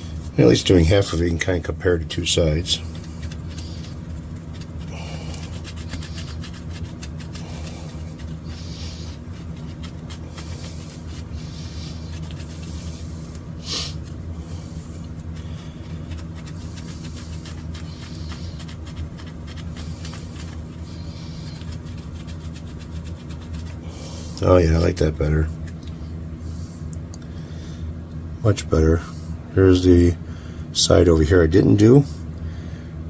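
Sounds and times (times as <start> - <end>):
steady low hum: 0.0 - 33.0
cloth swishing strokes: 2.9 - 14.2.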